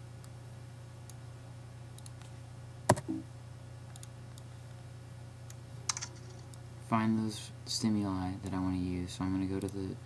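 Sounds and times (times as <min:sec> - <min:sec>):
steady low hum: 0:00.0 - 0:10.0
computer mouse clicks: 0:02.0 - 0:02.3, 0:03.9 - 0:04.5.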